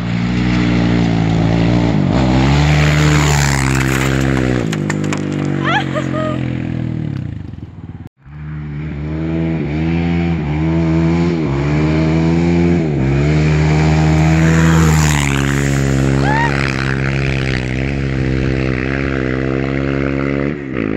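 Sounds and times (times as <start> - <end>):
quad engine revving hard: 0.0 - 7.3, 8.4 - 20.9.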